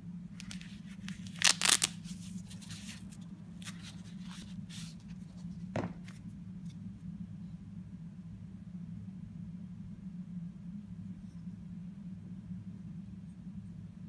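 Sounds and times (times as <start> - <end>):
steady low hum: 0.0 - 14.0
nylon sheath flap pulled open: 0.4 - 2.0
nylon rustling: 0.4 - 4.5
soft knock: 5.7 - 6.1.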